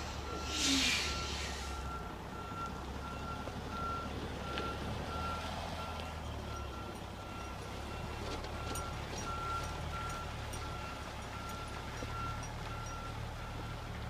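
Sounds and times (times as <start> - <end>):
truck engine running: 0.0 - 14.0
back-up alarm beeping: 0.2 - 13.7
short hiss: 0.4 - 1.7.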